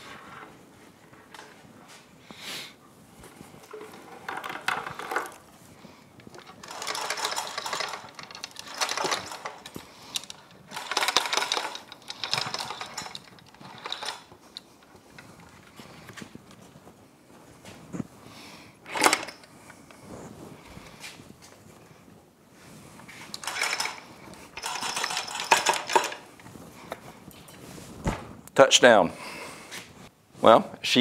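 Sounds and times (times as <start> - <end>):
steel chain rattling through hoist: 6.3 - 14.4, 18.9 - 19.5, 23.4 - 26.2.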